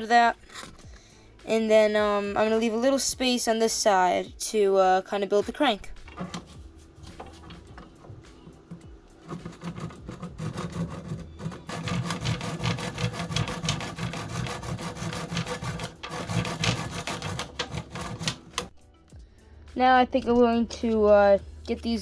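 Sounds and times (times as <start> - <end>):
hand saw cutting wood: 6.1 - 18.7.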